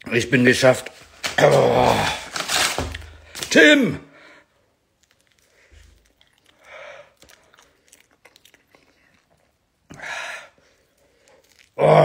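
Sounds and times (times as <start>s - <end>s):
man chewing: 4.7s - 11.9s
breathy sound: 5.3s - 8.0s, 9.9s - 12.0s.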